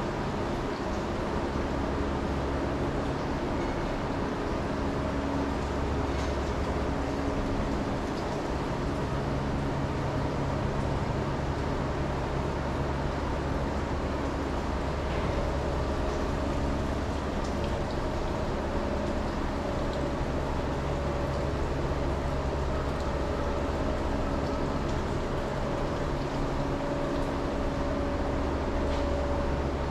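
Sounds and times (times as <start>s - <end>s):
low machine hum with held tones: 0.0s - 29.9s.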